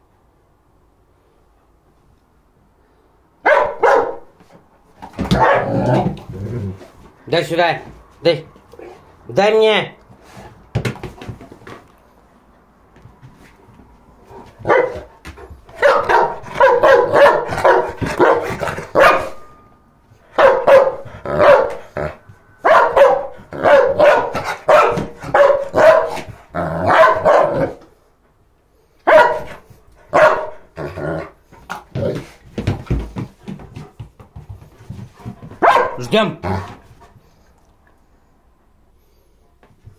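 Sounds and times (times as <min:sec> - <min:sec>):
dog barking and growl-barking: 0:03.5 - 0:04.2, 0:05.3 - 0:06.2, 0:14.6 - 0:15.1, 0:15.8 - 0:19.4, 0:20.4 - 0:27.8, 0:29.1 - 0:32.2, 0:35.6 - 0:36.8.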